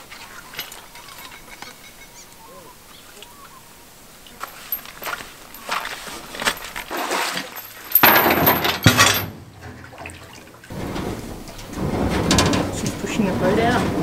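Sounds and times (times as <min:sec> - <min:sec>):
footsteps on stones: 0:04.3 - 0:09.2
anchor clattering on rocks: 0:04.4 - 0:14.0.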